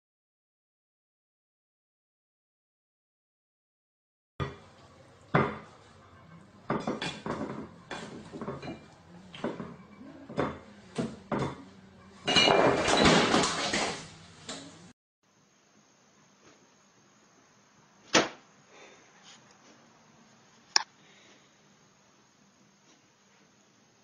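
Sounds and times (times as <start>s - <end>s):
plates and cutlery clinking: 4.4s - 14.7s.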